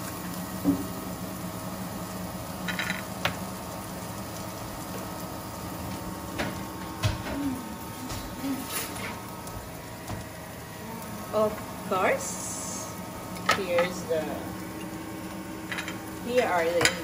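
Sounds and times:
induction cooktop humming: 0:00.0 - 0:17.0.

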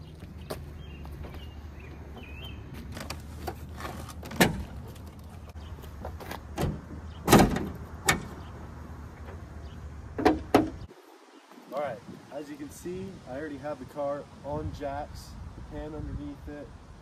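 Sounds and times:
car hood release clunk: 0:06.6 - 0:08.4.

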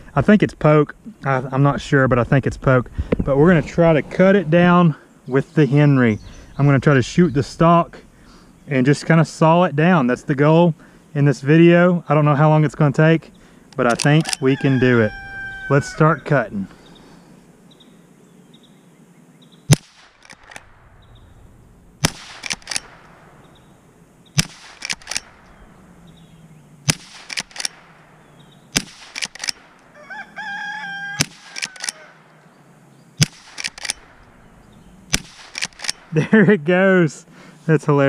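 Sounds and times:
rifle lever metallic clicks: 0:13.7 - 0:14.4, 0:22.3 - 0:23.0, 0:24.4 - 0:25.5, 0:26.9 - 0:27.8, 0:28.8 - 0:29.7, 0:31.2 - 0:32.0, 0:33.2 - 0:34.3, 0:35.1 - 0:36.1
rooster crowing: 0:14.1 - 0:16.8, 0:29.9 - 0:32.3
rifle shots: 0:19.7 - 0:20.9, 0:22.0 - 0:23.5, 0:24.4 - 0:25.5, 0:26.8 - 0:29.8, 0:31.2 - 0:32.0, 0:33.2 - 0:34.3, 0:35.1 - 0:36.2.

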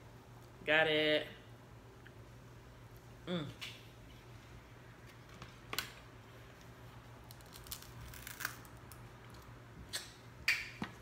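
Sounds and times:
crab shell cracking: 0:07.3 - 0:09.0.

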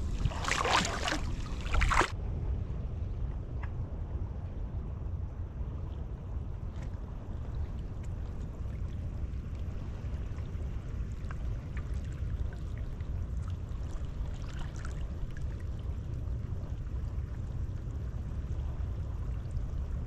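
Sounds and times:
light ticks and splashes: 0:00.0 - 0:02.2, 0:06.6 - 0:20.0
water lapping among rocks: 0:00.0 - 0:02.2
wind rumbling on microphone: 0:00.0 - 0:20.0.

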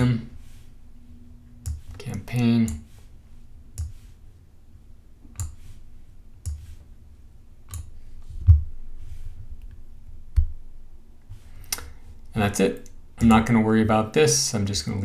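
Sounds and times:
faint steady hum: 0:00.0 - 0:15.0
computer mouse clicks: 0:01.6 - 0:02.8, 0:03.7 - 0:04.1, 0:05.3 - 0:05.8, 0:06.4 - 0:06.8, 0:07.6 - 0:08.6.

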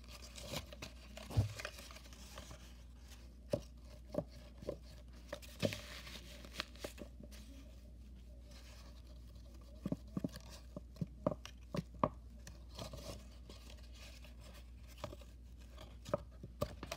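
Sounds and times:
folded paper crinkling: 0:00.0 - 0:03.7, 0:04.3 - 0:07.7.

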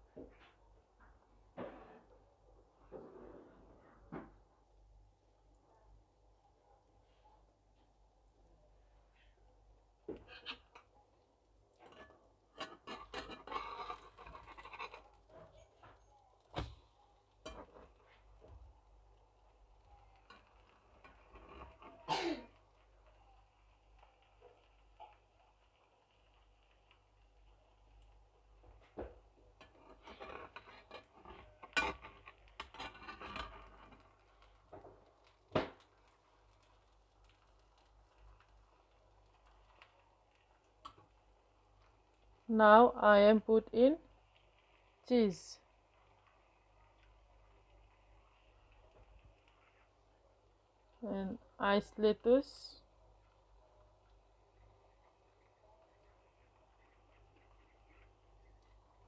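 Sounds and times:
spatula scraping frying pan: 0:10.1 - 0:10.9, 0:11.8 - 0:16.0, 0:17.4 - 0:18.6, 0:20.2 - 0:22.7, 0:28.7 - 0:35.4.

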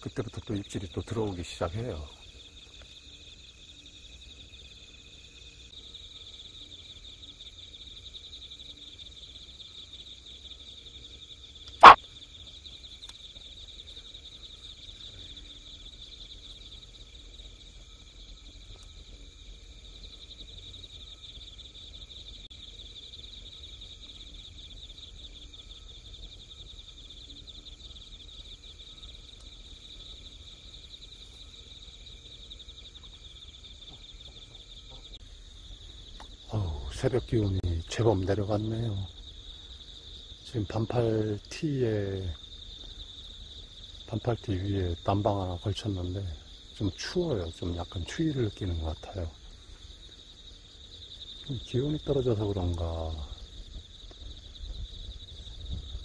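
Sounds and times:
night insects chirping: 0:00.0 - 0:56.0
sharp loud click: 0:11.7 - 0:12.0.

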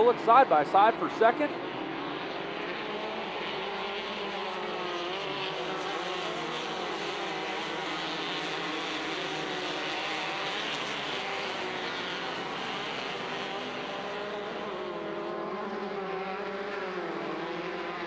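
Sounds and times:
off-road buggy engines revving: 0:00.0 - 0:18.0.

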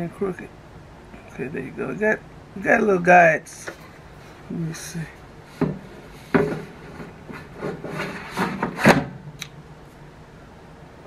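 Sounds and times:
air fryer drawer scraping: 0:05.6 - 0:09.2.

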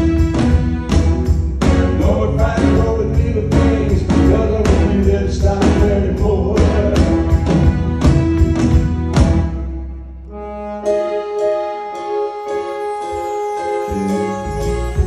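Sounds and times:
band playing bass and drums: 0:00.0 - 0:09.8
man singing: 0:01.7 - 0:07.6.

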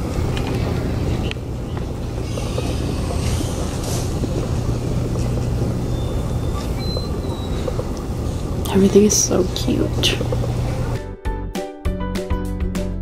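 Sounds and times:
shopping cart wheels rolling: 0:00.0 - 0:11.0.

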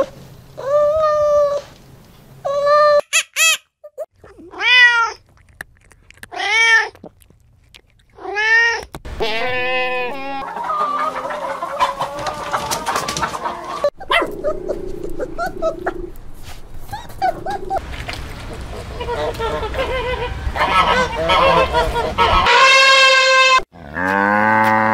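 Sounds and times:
overlapping animal calls: 0:04.2 - 0:16.2, 0:16.8 - 0:23.6.

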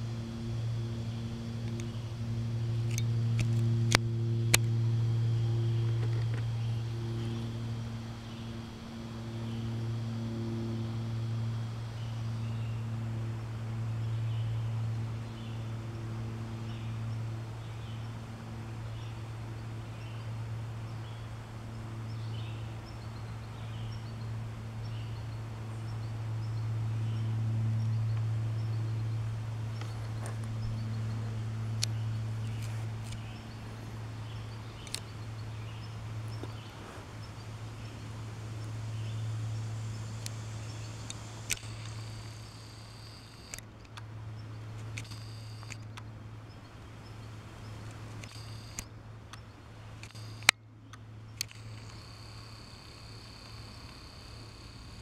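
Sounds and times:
steady low hum: 0:00.0 - 0:55.0
sharp clicks: 0:02.8 - 0:04.8, 0:34.8 - 0:35.2, 0:40.2 - 0:44.1, 0:44.8 - 0:46.1, 0:47.8 - 0:49.4, 0:50.0 - 0:54.9.

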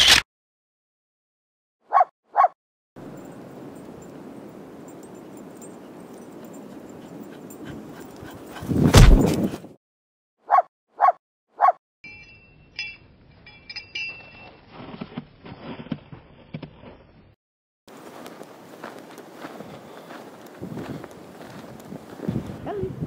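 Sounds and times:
puppy barking: 0:01.9 - 0:02.5, 0:10.5 - 0:11.8
wind on microphone: 0:06.2 - 0:09.7, 0:20.5 - 0:23.0.

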